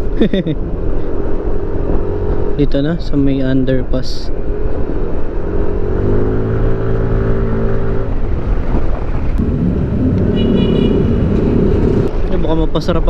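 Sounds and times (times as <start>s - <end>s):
wind on microphone: 7.3s - 12.2s.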